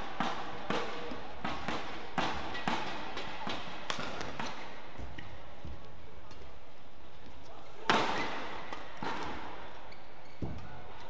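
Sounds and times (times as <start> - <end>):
rackets striking shuttlecock: 0.0 - 5.4, 7.8 - 9.7.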